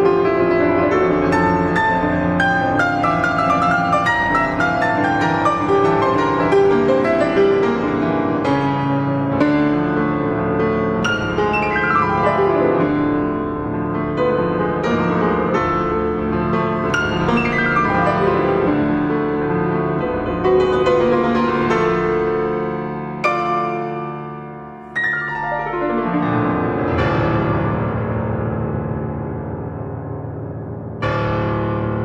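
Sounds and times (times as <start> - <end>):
solo classical piano piece: 0.0 - 32.0.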